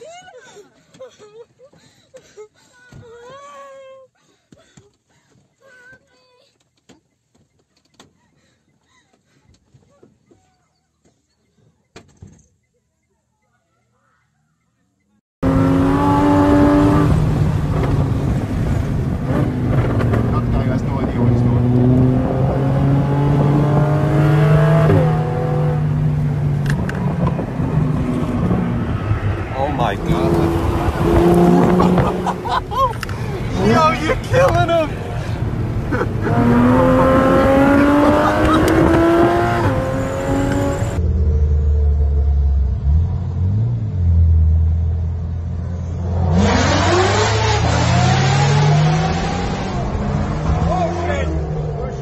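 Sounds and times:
car engine revving from inside: 15.4s - 26.3s, 36.2s - 45.1s.

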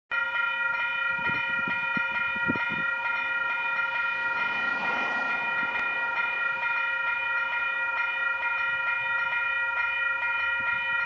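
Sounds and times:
level crossing warning bell ringing: 0.1s - 11.0s.

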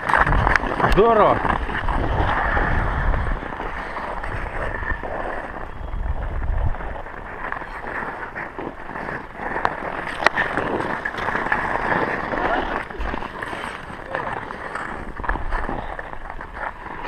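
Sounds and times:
wind buffeting microphone: 0.0s - 9.5s
ice skate blades scraping: 0.0s - 17.0s.

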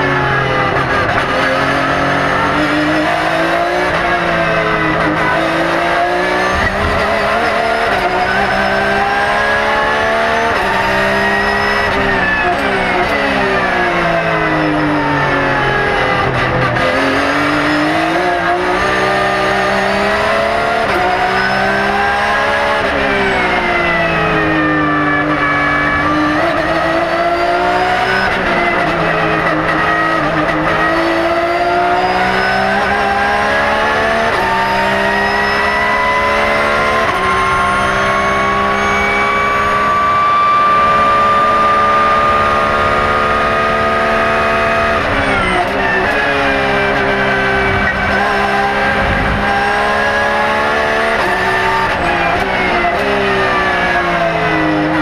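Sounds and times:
racing engine revving: 0.0s - 55.0s.

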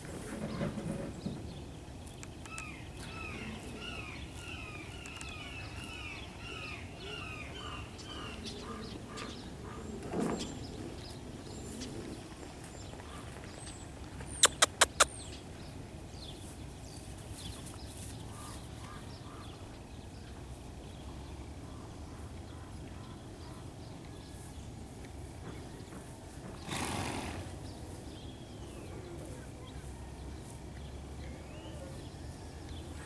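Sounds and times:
low outdoor rumble: 0.0s - 33.0s
sharp clicks: 4.9s - 5.4s, 14.4s - 15.2s.

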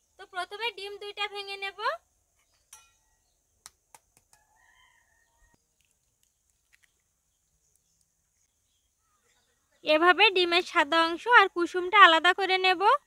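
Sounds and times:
eggshell cracking: 5.7s - 8.1s.

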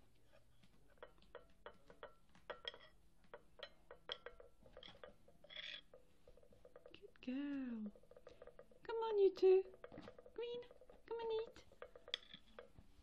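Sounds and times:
spoon clinking on china plate: 1.0s - 7.0s
spoon scraping plate: 3.6s - 7.0s.

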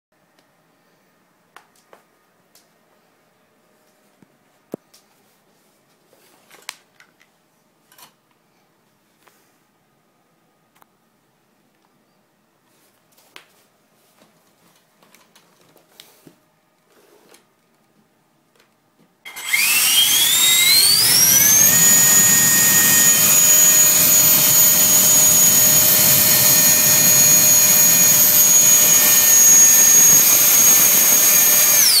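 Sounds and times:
electric ducted fan whine: 19.3s - 32.0s.

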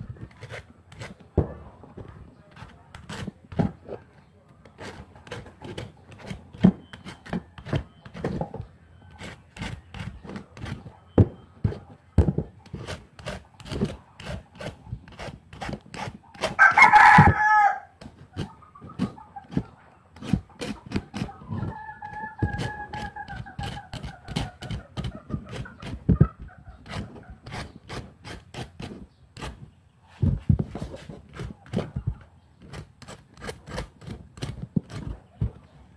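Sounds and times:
vegetable peeler scraping: 0.0s - 1.2s, 2.5s - 4.0s, 4.6s - 10.9s, 12.6s - 16.8s, 18.0s - 29.7s, 30.7s - 35.6s
rooster crowing: 16.6s - 18.0s.

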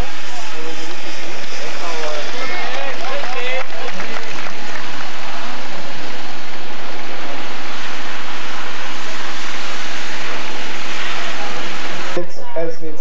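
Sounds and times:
crowd applauding: 1.6s - 5.7s.

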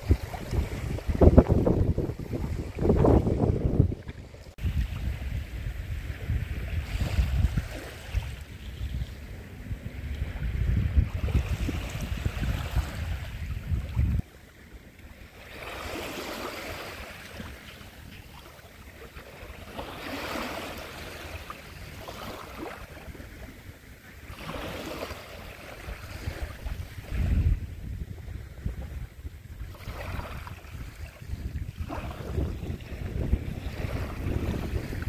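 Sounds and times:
wind buffeting microphone: 0.0s - 14.3s, 25.6s - 35.0s
waves lapping over pebbles: 0.0s - 27.6s, 28.4s - 35.0s.

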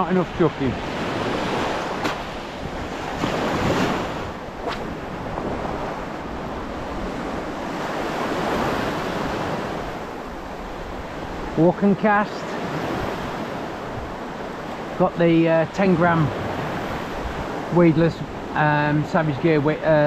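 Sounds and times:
wind buffeting microphone: 0.0s - 11.6s, 12.6s - 15.0s, 16.2s - 19.0s
waves breaking on shingle: 1.3s - 5.7s.

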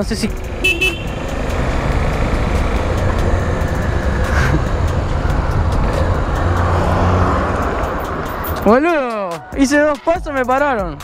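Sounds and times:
motorcycle engine running: 0.0s - 8.0s
road noise: 0.0s - 11.0s.

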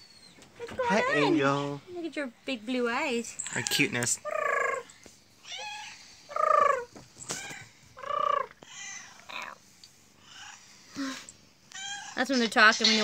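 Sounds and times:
cat meowing: 11.7s - 12.2s.

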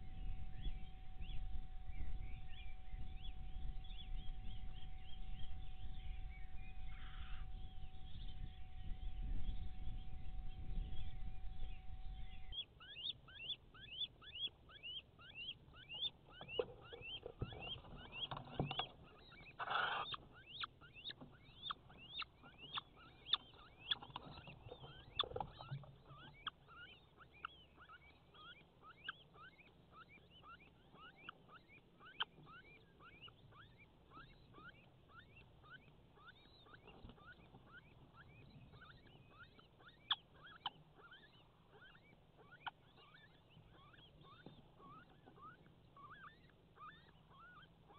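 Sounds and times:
animal chirping: 0.0s - 47.9s.

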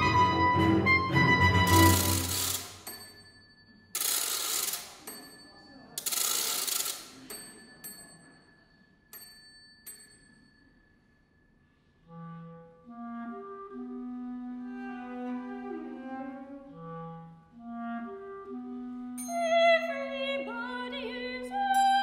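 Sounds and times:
low clarinet and string notes: 0.0s - 2.6s, 12.0s - 21.7s.

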